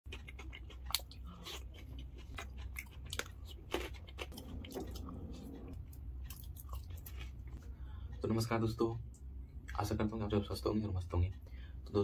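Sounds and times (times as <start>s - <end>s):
crunching and chewing: 0.1s - 8.2s
steady low hum: 0.1s - 12.0s.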